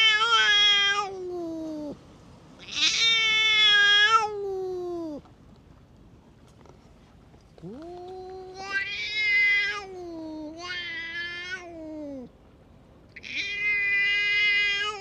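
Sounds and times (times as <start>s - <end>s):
cat yowling: 0.0s - 2.0s, 2.6s - 5.2s, 7.6s - 12.3s, 13.2s - 15.0s.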